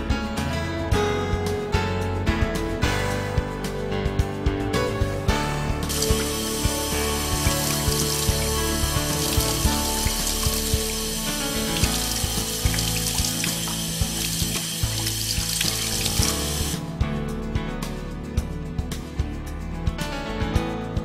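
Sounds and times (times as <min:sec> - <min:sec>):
background music: 0:00.0 - 0:21.0
tap water pouring into sink: 0:05.9 - 0:16.8.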